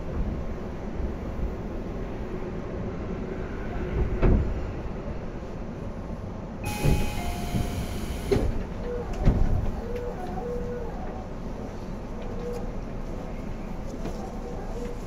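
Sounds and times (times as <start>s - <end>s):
train wheels rumbling on rail: 0.0s - 15.0s
short tones: 6.6s - 8.3s
heavy clunks of wheels: 6.6s - 9.8s.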